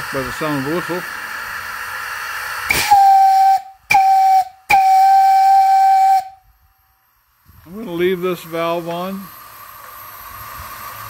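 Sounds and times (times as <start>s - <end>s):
steam hissing: 0.0s - 6.5s, 7.2s - 11.0s
steam whistle blasts: 2.7s - 6.5s.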